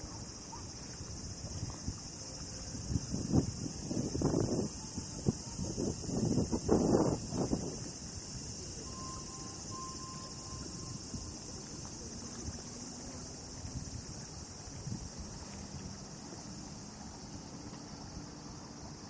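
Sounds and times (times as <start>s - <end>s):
crickets trilling: 0.0s - 19.0s
faint thin tone: 8.8s - 13.9s.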